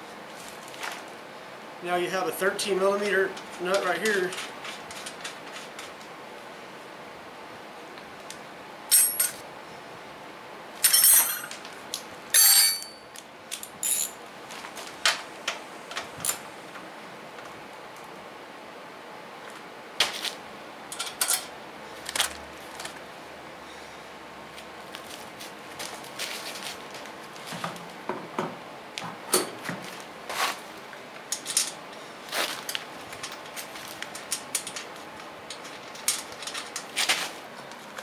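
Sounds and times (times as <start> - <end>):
metal clinks and knocks: 8.9 - 9.4, 10.8 - 11.6, 12.4 - 14.2.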